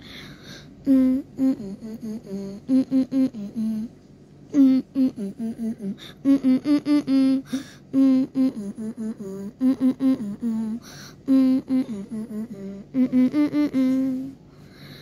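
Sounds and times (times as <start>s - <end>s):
person humming a melody: 0.8s - 3.9s, 4.5s - 15.0s.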